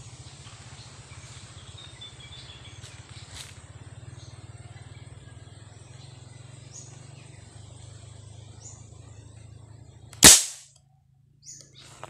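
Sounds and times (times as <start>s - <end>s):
faint low hum: 0.0s - 12.0s
marble gun shot: 10.2s - 10.7s.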